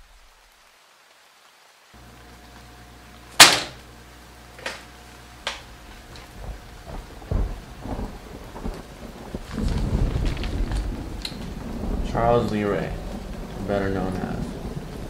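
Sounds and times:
loud sharp bang with ringing: 0:03.4 - 0:03.8
low thumps: 0:05.8 - 0:15.0.

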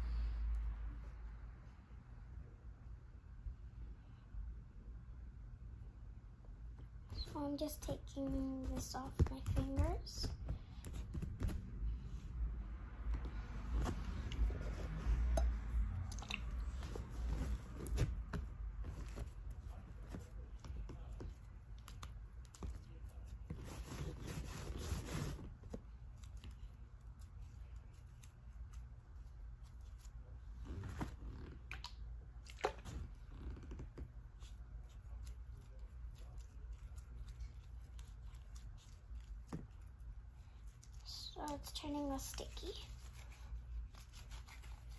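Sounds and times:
hands kneading sticky slime: 0:13.0 - 0:44.9.

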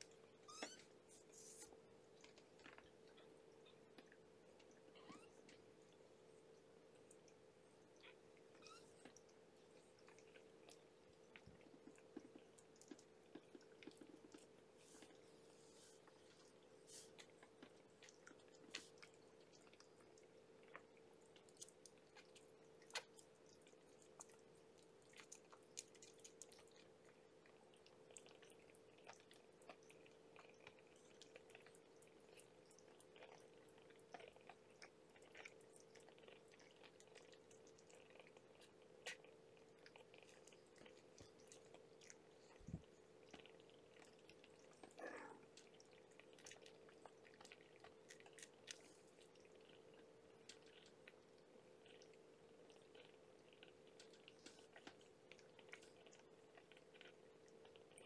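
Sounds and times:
faint hum: 0:00.0 - 0:58.0
kitten squeak: 0:00.4 - 0:00.8.

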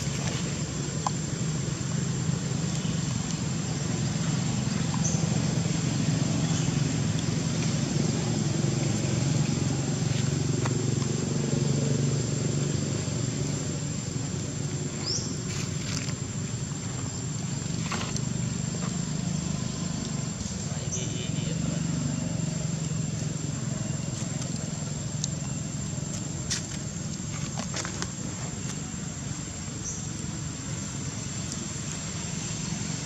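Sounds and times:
low engine drone: 0:00.0 - 0:27.1.

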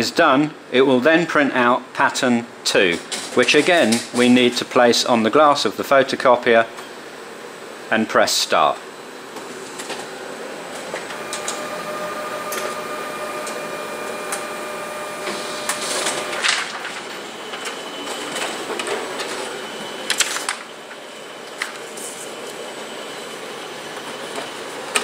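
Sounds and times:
copier mechanical whir: 0:02.2 - 0:25.0
held whine: 0:10.5 - 0:20.1.

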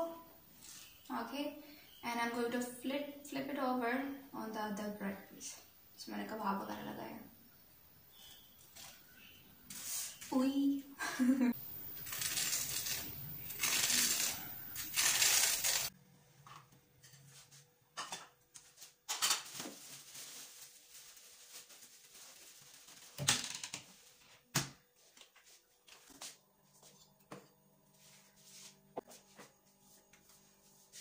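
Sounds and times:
plastic bread bag rustling: 0:11.6 - 0:15.9, 0:18.7 - 0:23.3
sandwich sizzling on a griddle: 0:11.6 - 0:15.9.

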